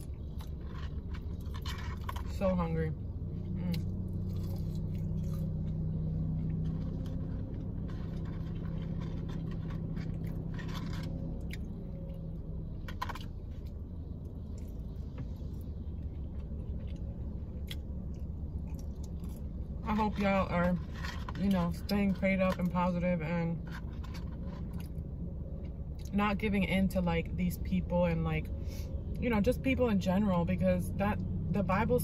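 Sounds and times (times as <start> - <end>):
chewing crunchy fries: 0.0 - 2.4, 3.3 - 22.8.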